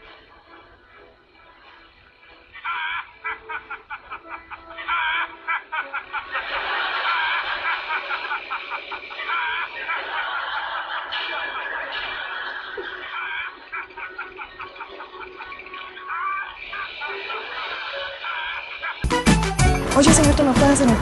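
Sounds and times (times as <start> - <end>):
person laughing: 2.6 - 19.0.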